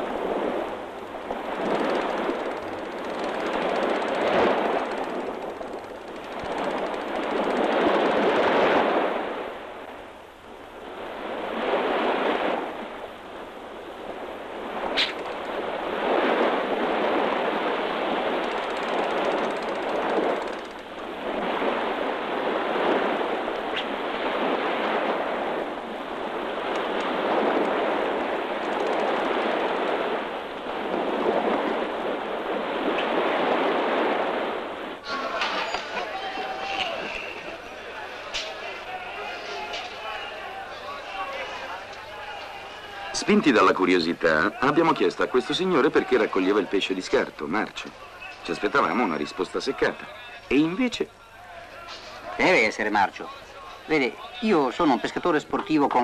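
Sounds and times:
muffled surf breaking on beach: 0.0 - 56.0
sharp click: 15.0 - 15.6.

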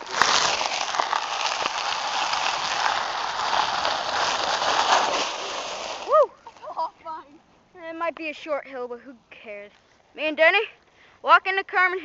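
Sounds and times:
sled scraping down icy slope: 0.0 - 6.7.

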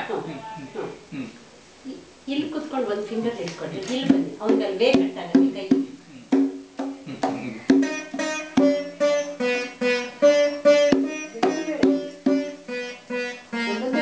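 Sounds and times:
veena plucked melody: 7.8 - 14.0.

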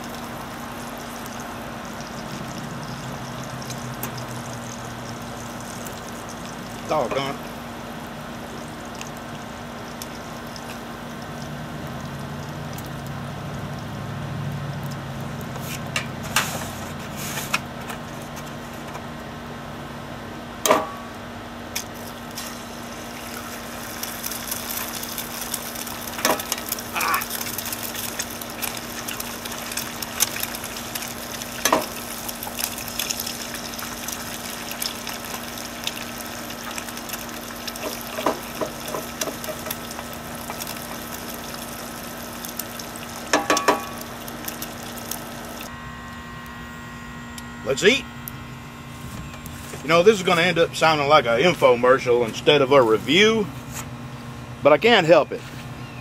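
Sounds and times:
bacon and eggs sizzling in skillet: 0.0 - 16.3, 21.8 - 45.7
knocks and taps against pan: 43.3 - 43.9.

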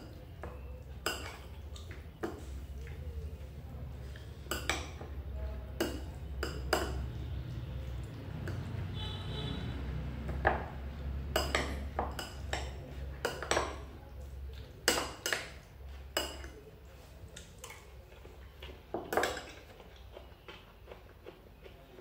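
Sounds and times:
metal spoon clinking on ceramic bowl: 11.3 - 13.8.

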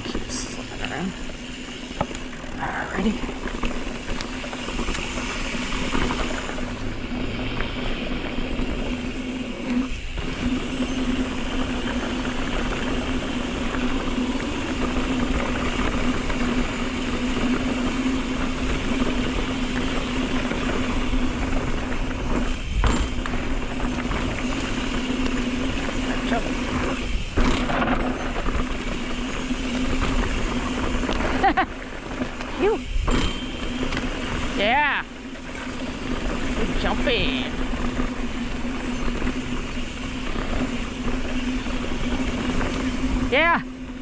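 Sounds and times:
bike tyres rumbling over dirt: 0.0 - 44.0
wind noise on microphone: 3.3 - 34.7.

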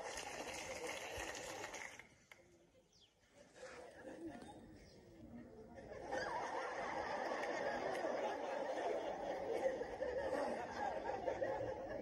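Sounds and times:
audience laughing: 5.8 - 12.0.

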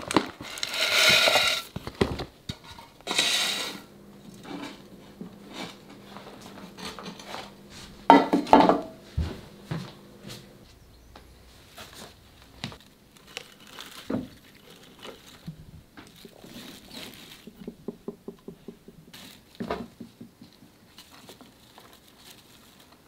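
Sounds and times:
soil and leaves rustling: 8.9 - 17.8, 20.7 - 23.0.

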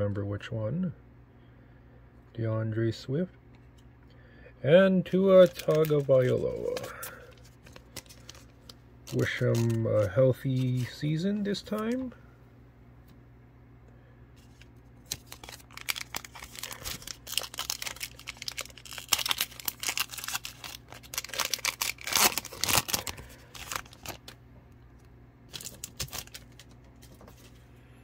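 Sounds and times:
wrapper being torn and crinkled: 5.3 - 11.0, 14.4 - 24.4, 25.5 - 27.5.

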